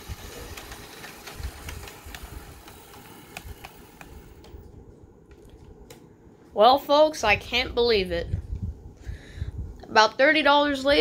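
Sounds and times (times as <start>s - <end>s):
model locomotive motor whir: 0.0s - 4.6s
wheels clicking on rails: 0.0s - 4.7s.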